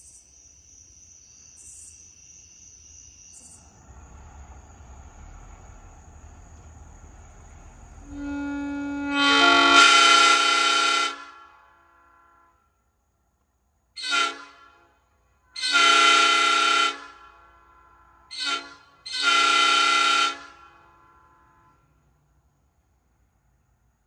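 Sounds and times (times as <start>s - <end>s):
locomotive air horn chord: 8.0s - 12.8s, 14.0s - 22.0s.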